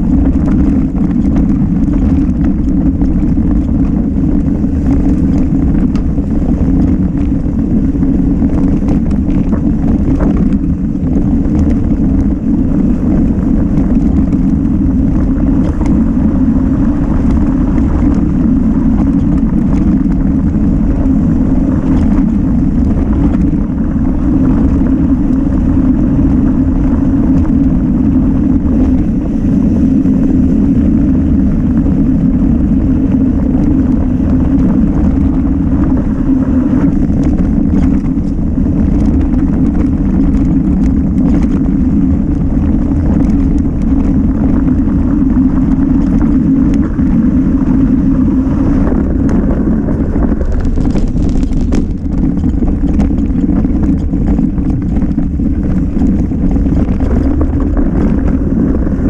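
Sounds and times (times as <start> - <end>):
tyre rumble: 0.0 - 59.0
wind rush on microphone: 0.0 - 59.0
faint clicks and rattles: 48.7 - 59.0.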